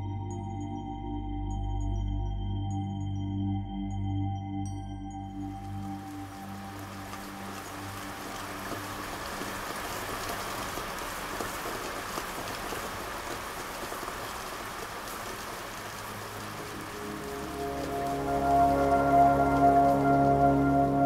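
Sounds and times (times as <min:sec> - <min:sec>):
soft sustained musical tone: 0:00.0 - 0:10.3, 0:15.9 - 0:21.0
rain falling on leaves: 0:05.4 - 0:21.0.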